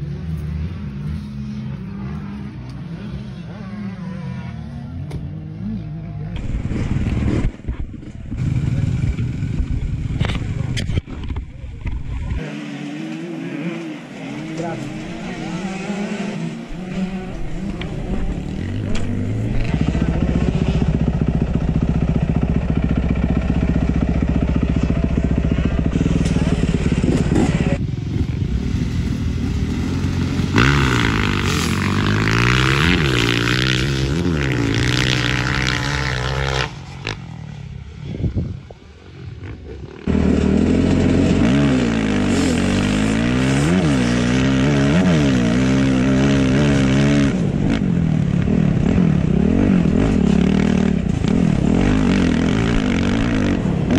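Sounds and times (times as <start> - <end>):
motocross bike engines revving: 0.0 - 53.9
close-up motorbike engine revs: 12.4 - 28.1, 29.3 - 37.3, 39.4 - 53.9.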